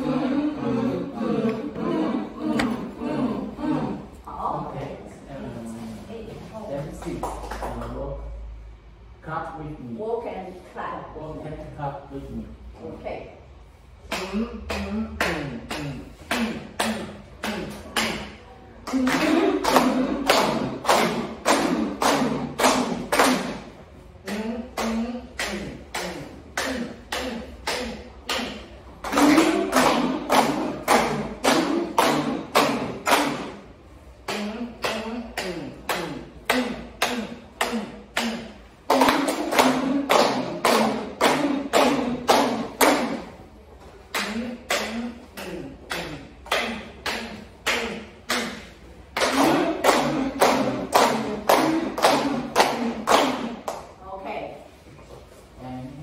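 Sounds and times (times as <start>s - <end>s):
group clapping in rhythm: 0.0s - 4.8s, 6.7s - 8.4s, 14.0s - 54.0s
voices chanting: 0.0s - 5.8s.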